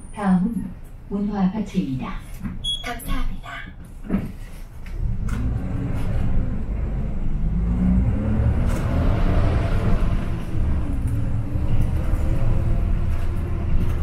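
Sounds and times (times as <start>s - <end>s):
bus engine accelerating: 4.9s - 14.0s.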